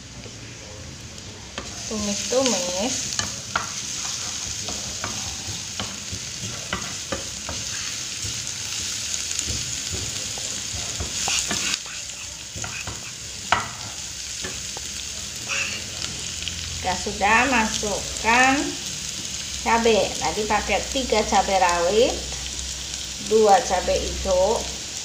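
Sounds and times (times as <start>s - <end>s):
shallots sizzling in oil: 0.0s - 25.0s
wooden spatula scraping pan: 3.2s - 13.8s
spatula knocking against pan: 9.4s - 11.7s.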